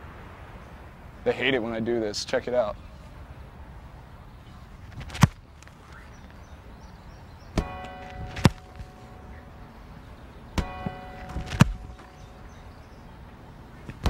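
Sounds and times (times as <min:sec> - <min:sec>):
football kicked thuds: 0:07.6 - 0:08.9, 0:10.6 - 0:12.1.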